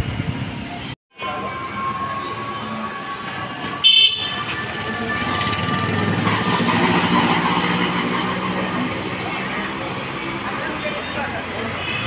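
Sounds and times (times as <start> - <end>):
traffic noise: 0.0 - 12.0
vehicle horn toot: 3.8 - 4.7.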